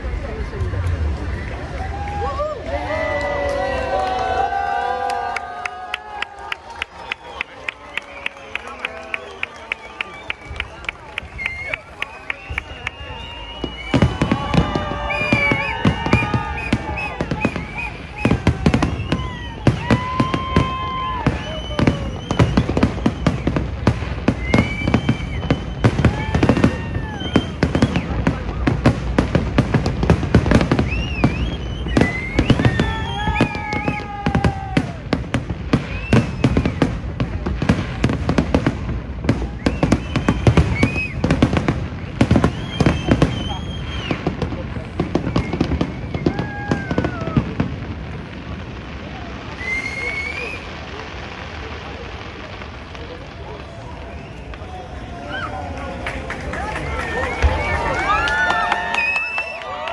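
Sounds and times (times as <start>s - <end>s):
fireworks whistling: 0.0s - 5.5s, 6.4s - 59.9s
fireworks bangs: 0.0s - 59.9s
high whistling tones: 10.0s - 23.6s, 24.2s - 28.2s, 30.8s - 34.2s, 39.5s - 41.3s, 42.4s - 44.2s, 49.5s - 50.7s.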